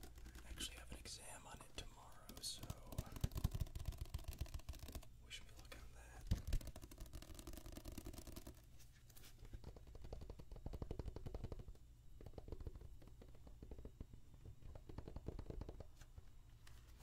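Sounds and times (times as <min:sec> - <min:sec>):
fingernails tapping on a book cover: 0:00.0 - 0:00.8, 0:02.1 - 0:05.1, 0:06.1 - 0:08.6, 0:09.4 - 0:16.0.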